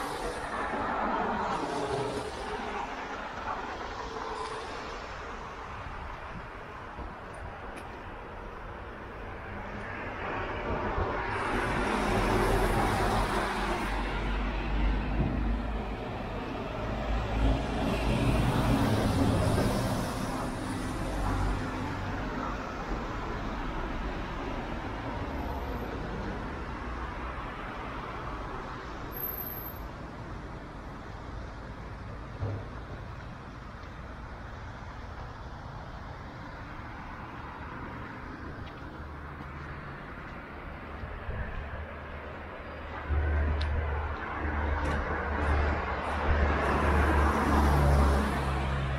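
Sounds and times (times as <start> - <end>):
road traffic: 0.0 - 48.9
car passing: 35.4 - 48.9.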